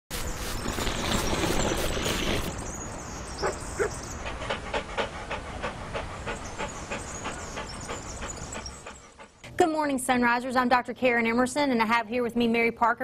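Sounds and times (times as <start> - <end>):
dog panting: 0.6 - 9.4.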